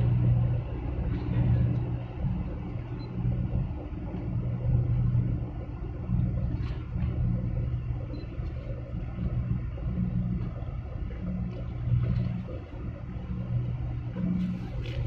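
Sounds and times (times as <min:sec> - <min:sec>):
ship engine rumble: 0:00.0 - 0:15.0.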